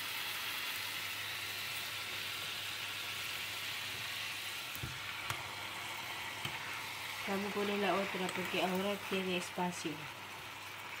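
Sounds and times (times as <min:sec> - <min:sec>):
meat sizzling in a frying pan: 0:00.0 - 0:11.0.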